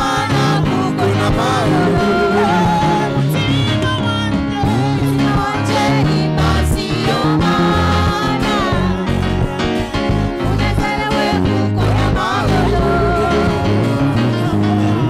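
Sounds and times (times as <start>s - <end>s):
women's choir singing: 0.0s - 3.6s, 4.8s - 15.0s
bass: 0.0s - 15.0s.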